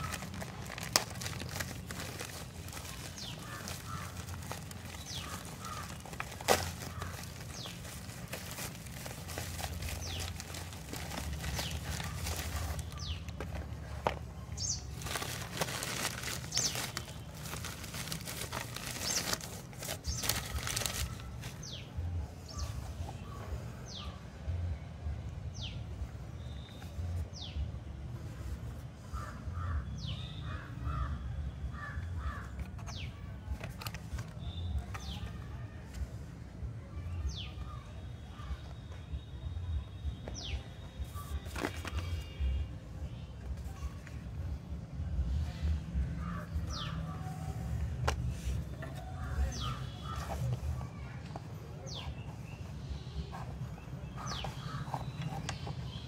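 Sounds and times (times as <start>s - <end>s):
plastic and bubble wrap crinkling: 0.0s - 21.9s, 41.0s - 42.5s.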